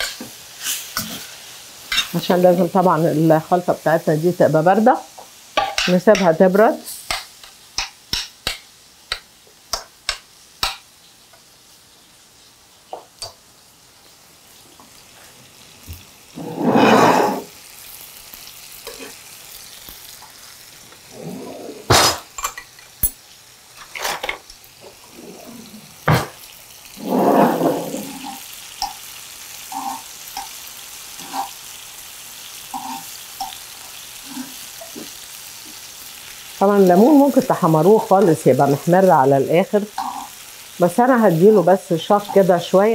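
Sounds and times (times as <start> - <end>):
tongs turning food in pan: 0.0 - 21.2, 24.4 - 42.9
slices sizzling in a frying pan: 0.0 - 42.9.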